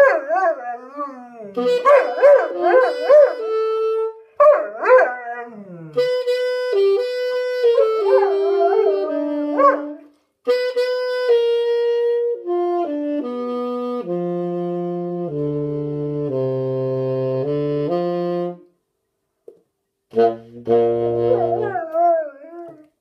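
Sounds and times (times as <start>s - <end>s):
dog howling: 0.0s - 3.4s, 8.0s - 10.0s, 21.3s - 22.8s
saxophone long notes: 0.3s - 4.4s, 5.3s - 18.7s, 20.1s - 22.6s.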